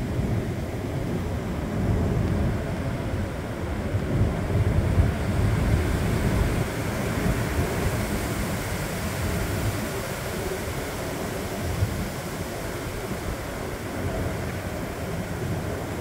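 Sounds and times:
gusty wind through leaves: 0:00.0 - 0:16.0
wind buffeting microphone: 0:00.0 - 0:16.0.

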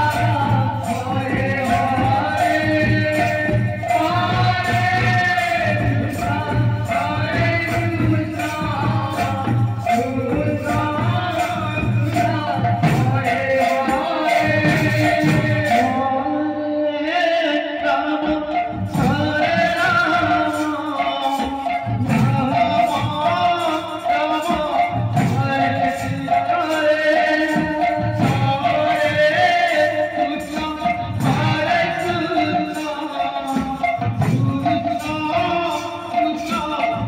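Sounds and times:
barrel drums: 0:00.0 - 0:16.0, 0:18.5 - 0:37.0
jingling metal percussion: 0:00.0 - 0:16.3, 0:18.2 - 0:37.0
man singing into a microphone: 0:00.0 - 0:37.0.

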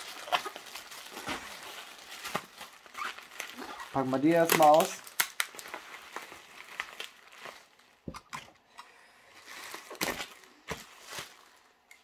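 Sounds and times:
sharp crackles of bubble wrap: 0:00.0 - 0:08.1, 0:09.3 - 0:11.8
bubble wrap crinkling: 0:00.0 - 0:08.2, 0:09.3 - 0:12.0.

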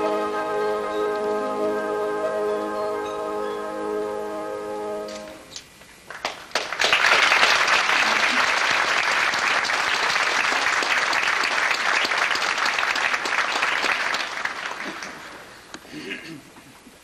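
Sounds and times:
audience applauding: 0:06.0 - 0:15.7.

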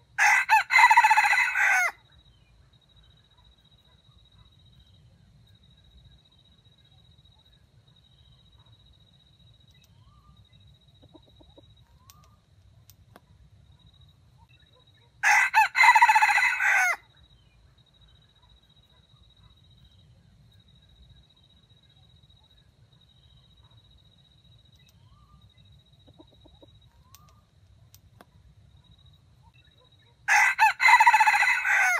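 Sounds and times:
rooster crowing: 0:00.2 - 0:02.0, 0:15.2 - 0:17.0, 0:30.3 - 0:31.9
soft clucks: 0:11.0 - 0:12.4, 0:26.0 - 0:27.4.

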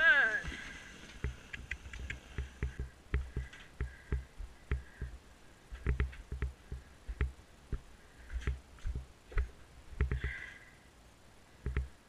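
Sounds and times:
sled shafts clicking: 0:00.0 - 0:05.2
pony hoof thumps: 0:00.4 - 0:10.5.

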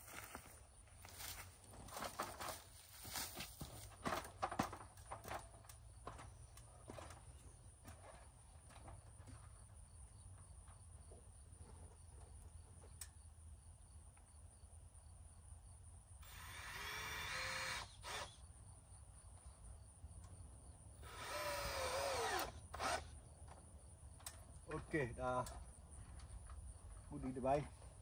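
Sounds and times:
power drill driving screws: 0:16.2 - 0:18.4, 0:21.0 - 0:23.1.

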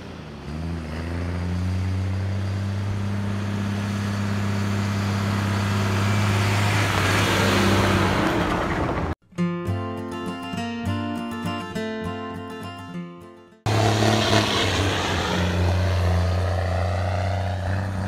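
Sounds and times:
truck engine drone: 0:00.0 - 0:09.2, 0:13.7 - 0:18.0.

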